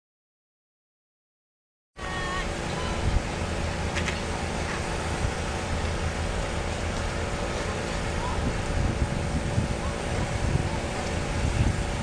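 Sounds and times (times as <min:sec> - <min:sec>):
low city rumble: 0:02.0 - 0:12.0.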